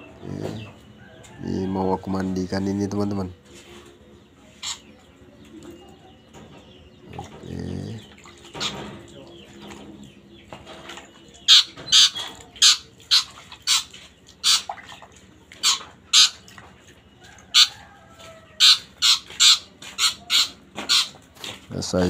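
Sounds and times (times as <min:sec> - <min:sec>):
bird chick squawking: 0:04.5 - 0:05.0, 0:11.4 - 0:14.8, 0:15.6 - 0:16.5, 0:17.4 - 0:21.2.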